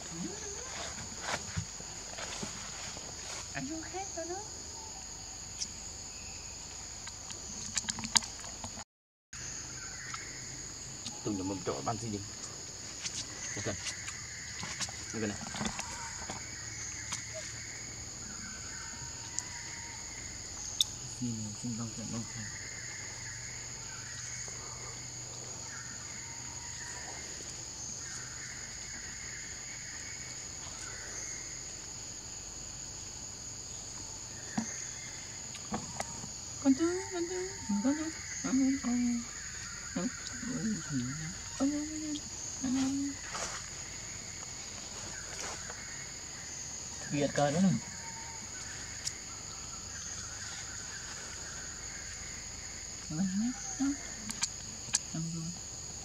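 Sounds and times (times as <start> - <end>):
insect chorus drone: 0.0 - 8.8, 9.4 - 56.0.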